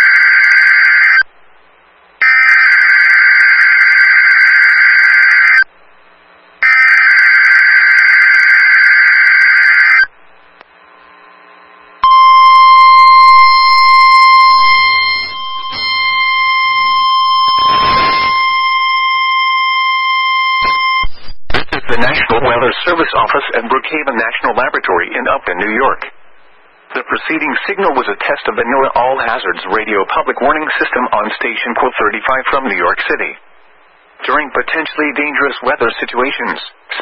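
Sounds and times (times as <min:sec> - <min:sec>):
steady warning alarm tone: 0:02.2 - 0:05.7, 0:06.6 - 0:10.1, 0:12.0 - 0:21.2
buzzy warbling digital bursts: 0:12.4 - 0:18.6.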